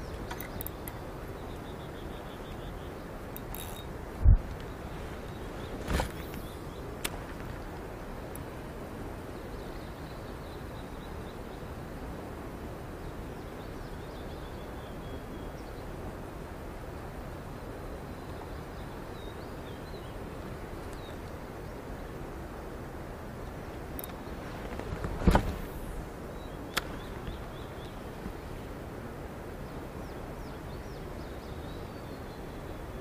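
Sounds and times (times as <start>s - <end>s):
faint bird chirps: 0.0s - 3.9s
outdoor background hiss: 0.0s - 33.0s.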